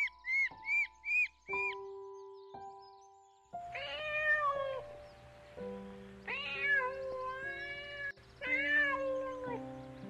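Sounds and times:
soft piano music: 0.0s - 10.0s
cat meowing: 3.7s - 4.9s, 6.2s - 9.7s.

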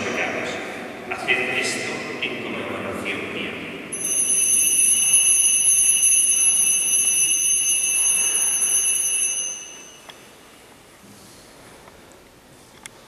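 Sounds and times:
altar bells ringing: 3.9s - 10.5s.

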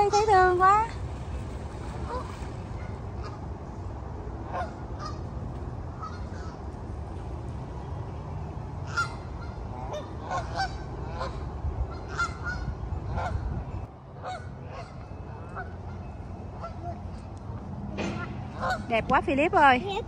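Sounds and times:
low steady rumble: 0.0s - 20.0s
geese honking: 5.9s - 6.6s, 8.8s - 13.5s, 14.2s - 19.1s.

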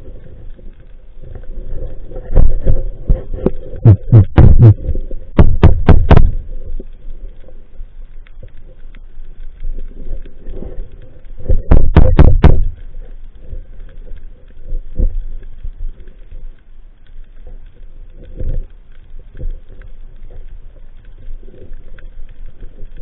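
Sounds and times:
muffled underwater thumps: 2.4s - 6.4s, 11.5s - 12.8s.

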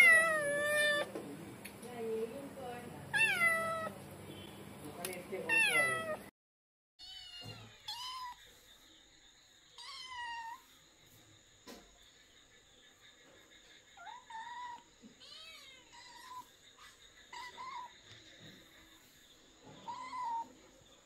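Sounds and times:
kitten meowing: 0.0s - 1.1s, 3.1s - 3.9s, 5.5s - 6.2s.

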